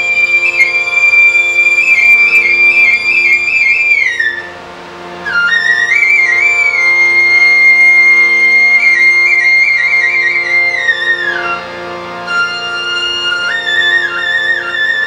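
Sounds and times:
flute melody with trills: 0.0 - 4.6, 12.2 - 15.0
steady held chords: 0.0 - 15.0.

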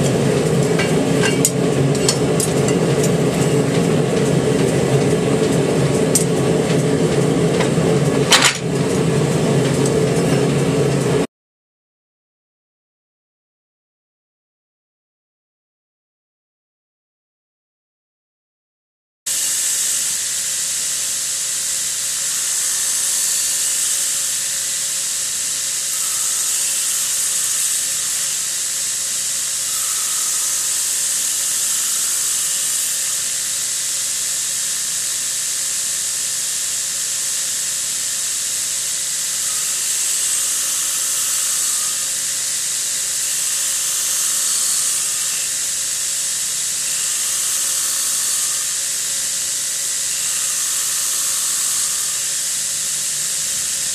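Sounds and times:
machine whine: 0.0 - 11.3, 19.3 - 53.9
belt sanding wood hiss: 19.3 - 53.9.

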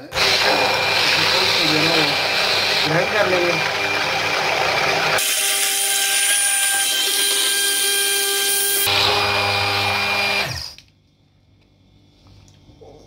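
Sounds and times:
hand blender motor whining: 0.0 - 10.8.

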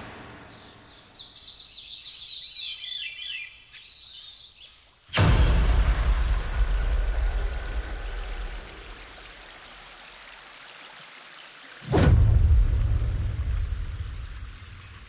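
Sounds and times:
stream cascading over rocks: 5.1 - 15.0.

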